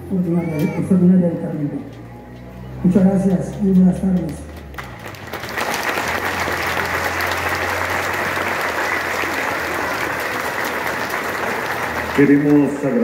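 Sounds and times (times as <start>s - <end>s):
large crowd applauding: 3.6s - 13.0s.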